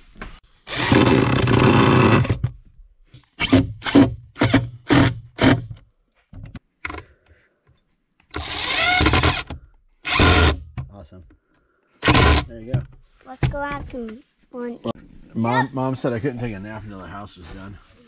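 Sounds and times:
cordless driver driving screws: 0:08.3 - 0:10.6, 0:12.0 - 0:12.5.

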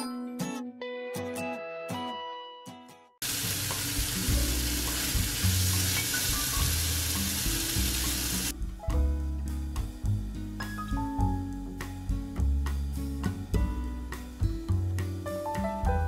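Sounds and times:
meat sizzling in a frying pan: 0:03.2 - 0:08.5
background music bass line: 0:03.6 - 0:16.0.

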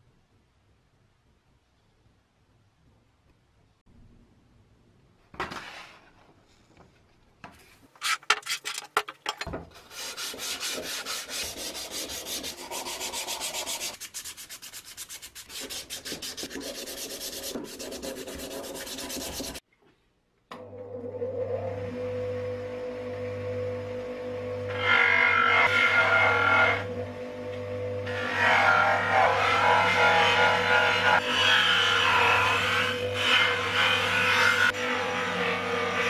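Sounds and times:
sandpaper scraping on steel: 0:08.0 - 0:08.8, 0:09.8 - 0:19.6.

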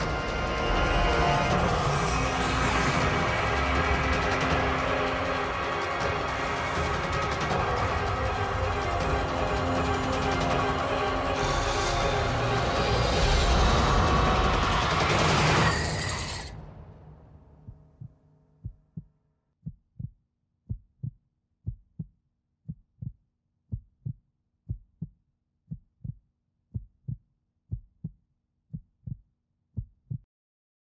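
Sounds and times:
trailer music: 0:00.0 - 0:18.7
heartbeat thumps: 0:17.6 - 0:22.1, 0:22.7 - 0:29.2, 0:29.8 - 0:30.2.

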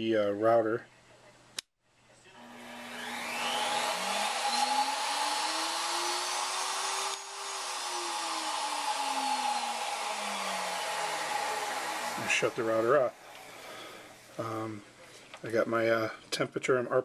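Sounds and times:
router motor whine: 0:02.3 - 0:13.6.

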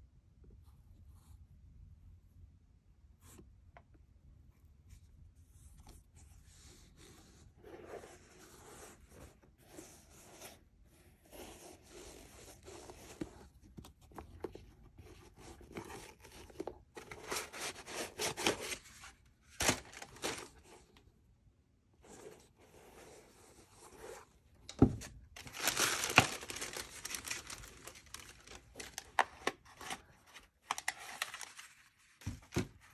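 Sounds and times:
paper stuffing rustling: 0:15.5 - 0:20.9, 0:25.4 - 0:32.9.

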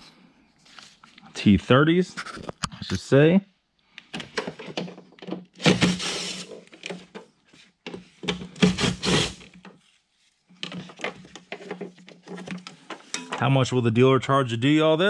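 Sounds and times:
plastic scraping rasps: 0:04.6 - 0:07.2, 0:08.3 - 0:09.7.

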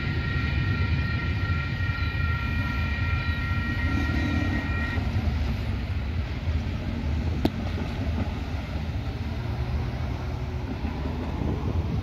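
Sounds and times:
level crossing warning bells: 0:00.0 - 0:05.8.

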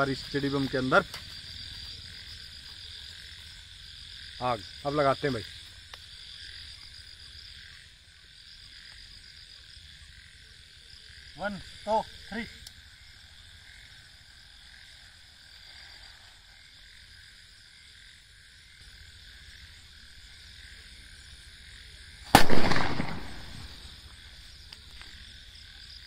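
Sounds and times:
frogs calling: 0:00.0 - 0:26.0
firecracker bang: 0:22.3 - 0:23.8.

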